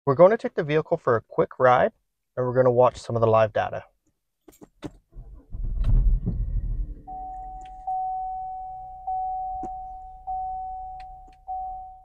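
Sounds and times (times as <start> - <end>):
low rumble: 5.3 - 7.6
car warning chime dinging: 7.1 - 12.0.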